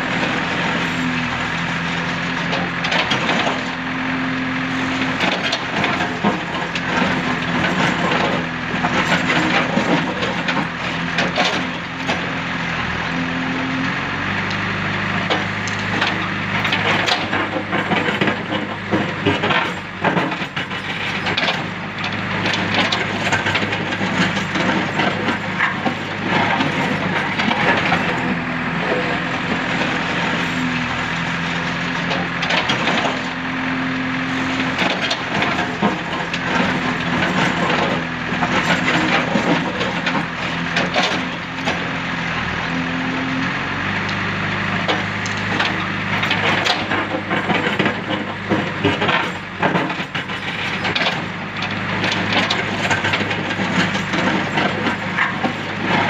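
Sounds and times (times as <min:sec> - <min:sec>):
diesel engine under load: 0:00.0 - 0:56.0
chunks of rubble clattering: 0:05.1 - 0:12.3, 0:15.2 - 0:30.7, 0:34.4 - 0:41.9, 0:44.8 - 0:56.0.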